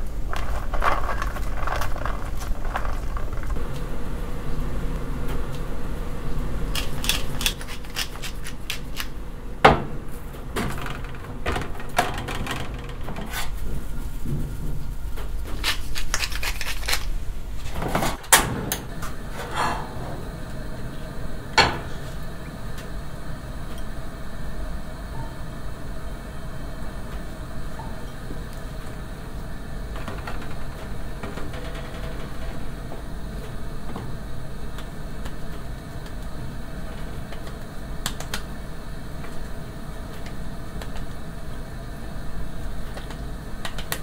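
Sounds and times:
salt sprinkling: 0:00.0 - 0:03.6, 0:06.7 - 0:09.2, 0:13.5 - 0:17.4
steady low hum: 0:00.0 - 0:44.0
pepper grinding: 0:00.1 - 0:03.6, 0:06.7 - 0:09.2, 0:15.4 - 0:17.4.

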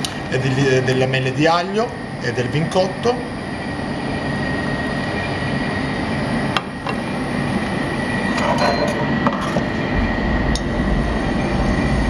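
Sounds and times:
commercial kitchen background noise: 0:00.0 - 0:12.0
utensils and crockery clinking: 0:08.4 - 0:09.6.

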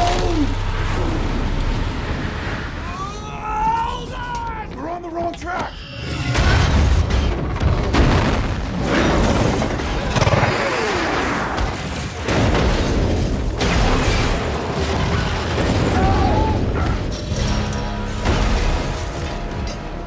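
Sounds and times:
dramatic music: 0:00.0 - 0:03.2, 0:12.4 - 0:20.0
heavy booms and crashing: 0:06.3 - 0:17.2.

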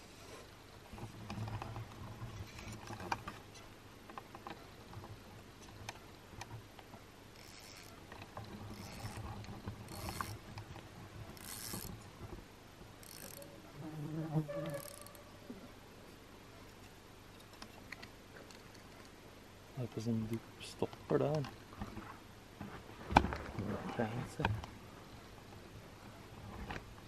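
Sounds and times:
fishing reel clicking: 0:07.4 - 0:08.0, 0:08.7 - 0:09.3, 0:09.9 - 0:10.4, 0:11.4 - 0:11.9, 0:13.0 - 0:13.5, 0:14.7 - 0:15.2
hand and line scraping: 0:07.4 - 0:12.4, 0:13.0 - 0:15.6.

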